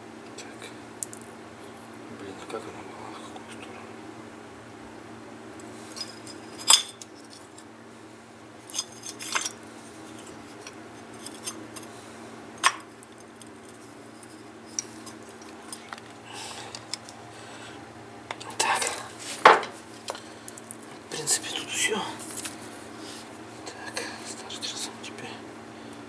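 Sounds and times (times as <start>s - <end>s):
low steady hum: 0.0s - 26.0s
metal parts clinking: 5.9s - 7.6s, 8.6s - 9.6s, 10.2s - 11.9s, 12.6s - 17.2s.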